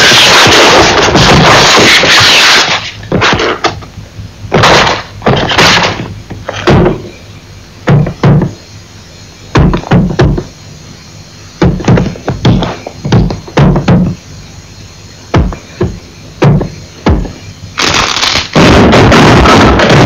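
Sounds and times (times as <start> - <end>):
irregular knocks and thuds: 3.0 - 3.9, 4.5 - 7.2, 7.8 - 8.6, 9.5 - 10.6, 11.6 - 14.2, 15.3 - 17.4.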